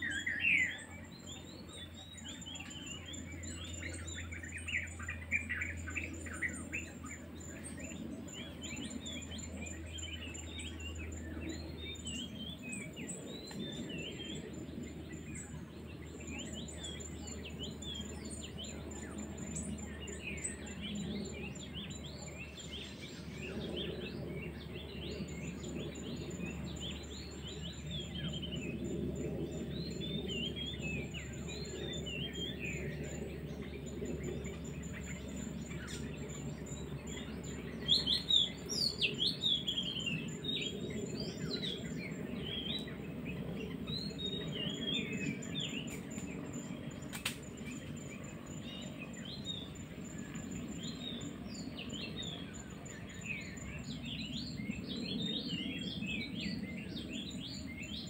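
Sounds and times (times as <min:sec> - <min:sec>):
small birds chirping: 0:00.0 - 0:58.0.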